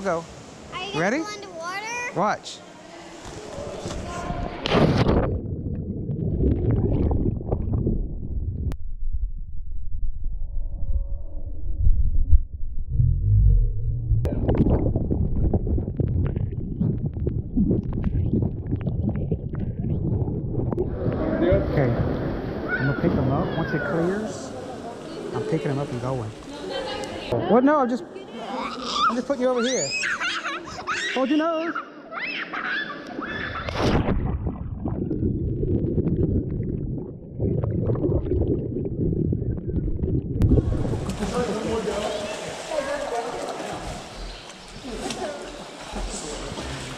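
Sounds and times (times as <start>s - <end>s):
low underwater rumble: 4.5s - 22.7s, 33.7s - 42.0s
underwater air bubbles gurgling: 5.2s - 8.7s, 14.2s - 21.4s, 34.0s - 41.4s
splash into water: 33.6s - 35.2s.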